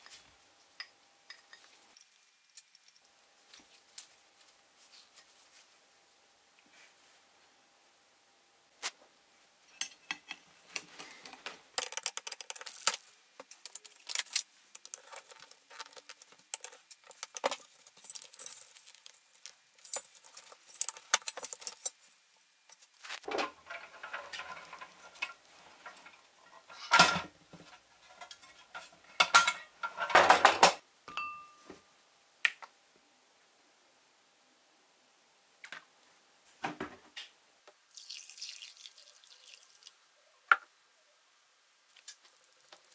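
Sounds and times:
metal parts clinking: 11.8s - 22.1s.

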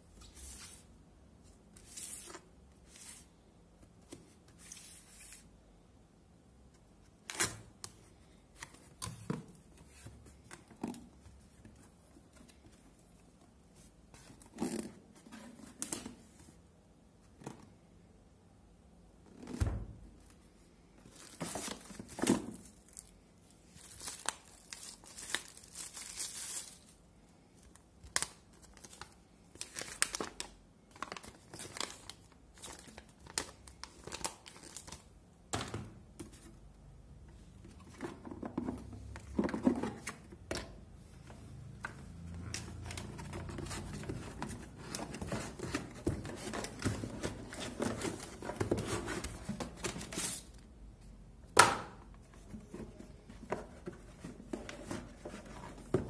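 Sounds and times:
cardboard packaging rustling: 21.0s - 23.1s, 23.7s - 27.0s, 42.7s - 50.5s, 52.4s - 56.0s
plastic wrapping crinkling: 23.7s - 26.9s.

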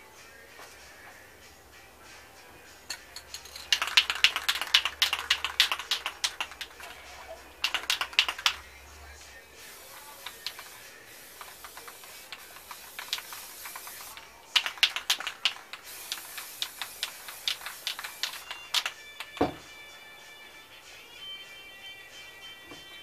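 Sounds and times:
spray paint can hissing: 3.3s - 8.9s, 9.6s - 19.6s
sharp clicks and taps: 3.4s - 6.9s, 7.6s - 8.6s, 11.4s - 19.6s.

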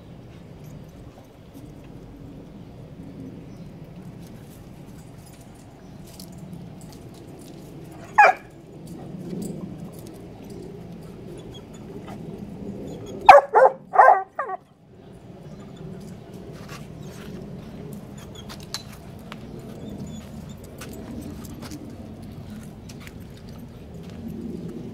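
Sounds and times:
dog barking: 8.1s - 8.5s, 13.2s - 14.6s.

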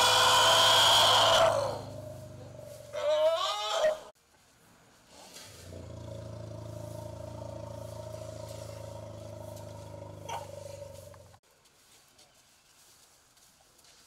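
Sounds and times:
low drone: 5.6s - 11.4s.

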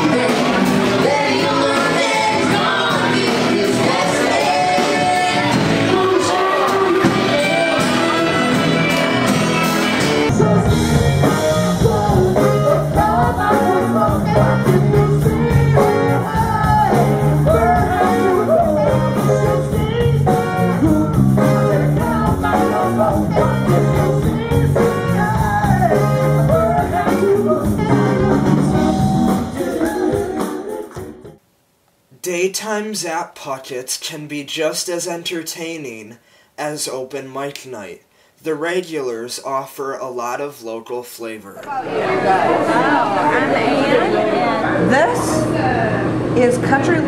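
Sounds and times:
live rock band with singer: 0.0s - 31.3s.

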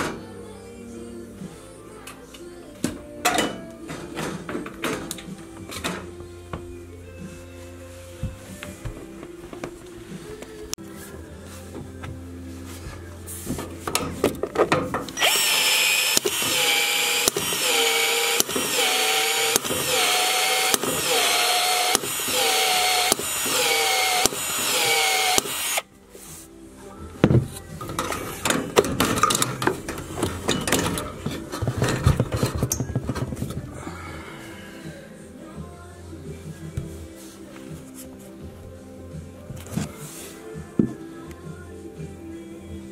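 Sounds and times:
cordless drill motor pulsing: 15.2s - 25.8s
tool handling clicks and rattles: 27.8s - 33.6s.

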